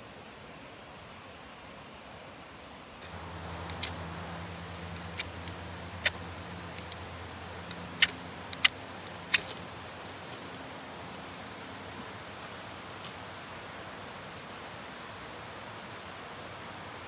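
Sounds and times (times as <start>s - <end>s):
knife scraping ferrocerium rod: 3.0s - 9.6s.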